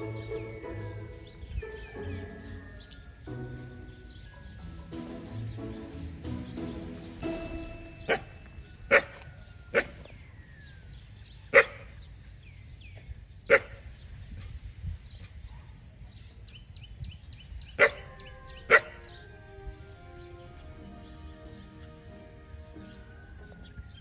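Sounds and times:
dog barking: 11.5 - 11.9, 13.5 - 13.8, 17.8 - 19.1.

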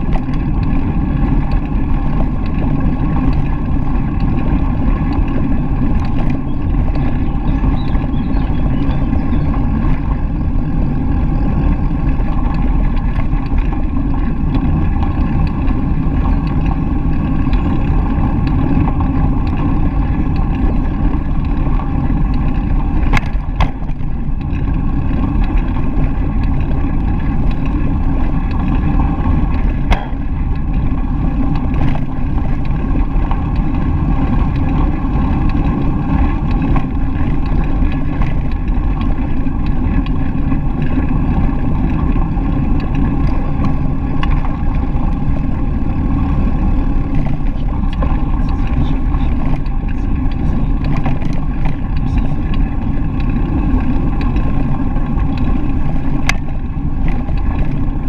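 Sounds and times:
bicycle tyres rolling on gravel: 0.0 - 58.0
wind on microphone: 0.0 - 58.0
sharp knocks: 29.9 - 30.2.

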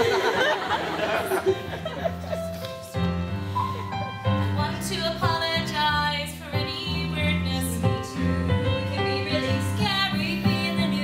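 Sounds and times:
instrumental accompaniment with bass: 0.0 - 11.0
woman singing: 4.5 - 11.0.

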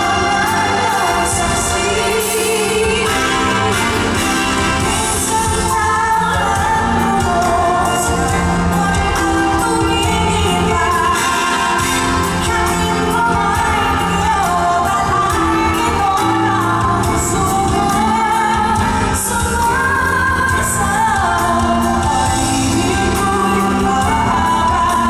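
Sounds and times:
band with keyboard and cymbal: 0.0 - 25.0
woman singing into microphone: 0.0 - 25.0.

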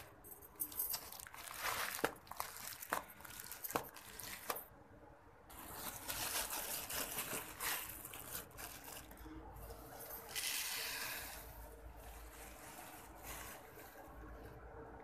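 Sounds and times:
plastic packet crinkling: 0.5 - 4.7, 5.5 - 9.3.

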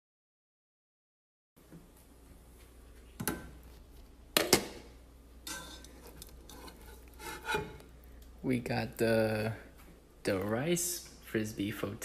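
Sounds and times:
metal pot and lid clanking: 5.4 - 7.8
soft scraping: 5.5 - 7.8.

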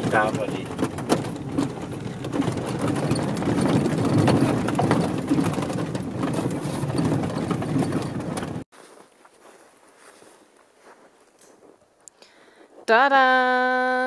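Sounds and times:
knocks and rattles: 0.0 - 8.7
engine and road rumble: 0.0 - 8.8.

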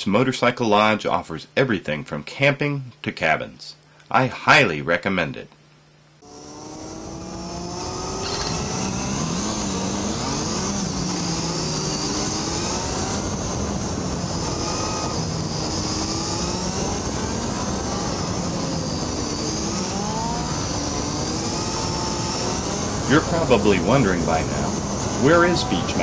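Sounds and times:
motorcycle engine accelerating: 6.2 - 26.0.

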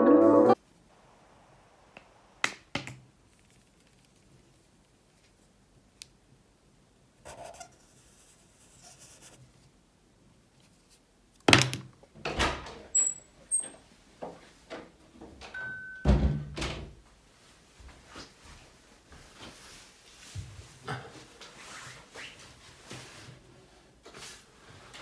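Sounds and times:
marker scratching on paper: 7.2 - 9.4.

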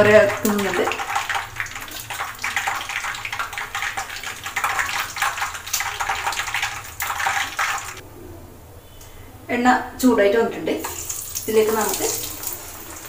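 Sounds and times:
cooking oil sizzling: 10.8 - 13.0.

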